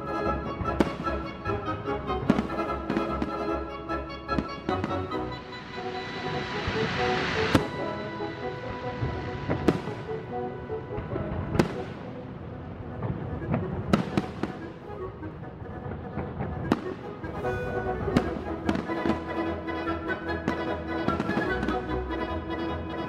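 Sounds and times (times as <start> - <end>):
music: 0.0 - 23.0
fireworks bursting: 0.6 - 1.5, 4.3 - 14.8, 16.2 - 21.8.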